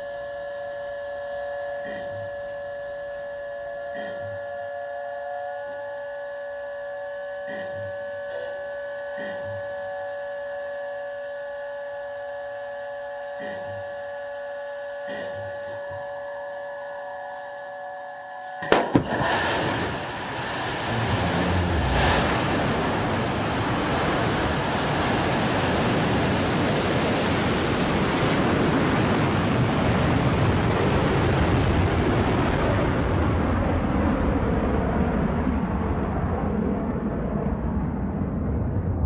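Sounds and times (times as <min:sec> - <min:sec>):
electrical hum: 0:00.0 - 0:39.0
rocket engine igniting with crack: 0:18.6 - 0:33.8
loud rocket engine roar: 0:18.6 - 0:39.0.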